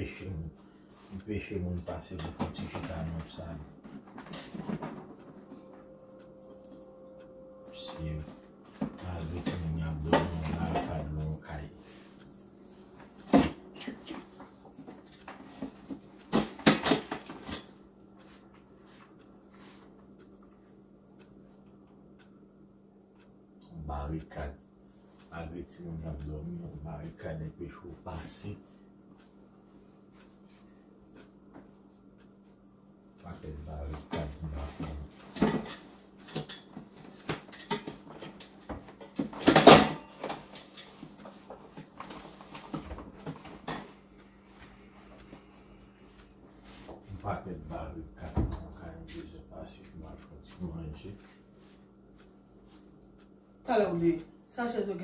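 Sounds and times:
steady low hum: 0.0s - 55.0s
metal chairs knocking and clattering: 35.3s - 40.5s.

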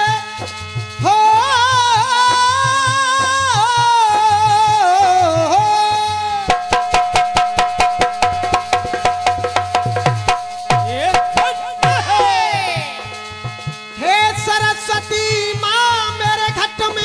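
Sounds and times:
man singing: 0.0s - 6.7s, 10.8s - 13.2s, 14.0s - 17.0s
fast hand drum pattern: 0.0s - 17.0s
harmonium: 0.0s - 17.0s.

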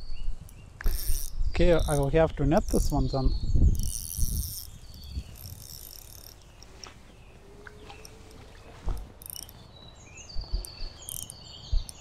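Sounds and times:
fishing rod and reel handling: 0.4s - 3.1s, 3.7s - 9.7s, 10.6s - 12.0s
high chirping: 9.1s - 12.0s.

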